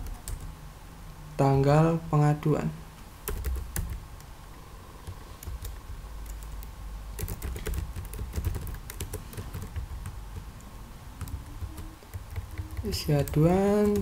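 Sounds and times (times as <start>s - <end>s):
keyboard typing clicks: 5.0s - 10.5s, 11.2s - 14.0s.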